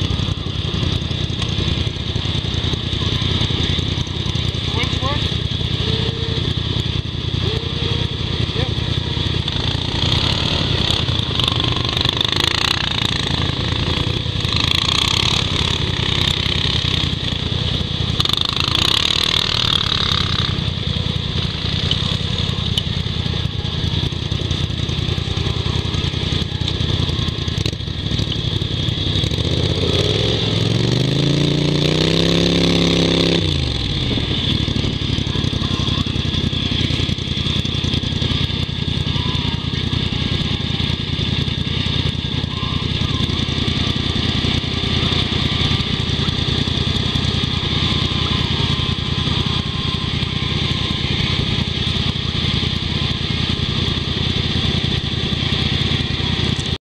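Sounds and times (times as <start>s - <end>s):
engines idling: 0.0s - 56.8s.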